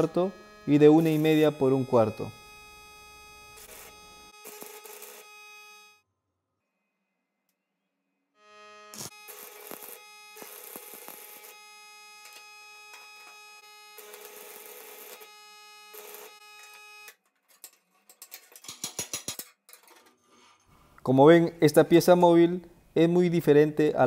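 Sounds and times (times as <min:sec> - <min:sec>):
arc welding crackle: 0:00.0 - 0:06.0, 0:08.4 - 0:17.2
steady whining tone: 0:00.0 - 0:06.0.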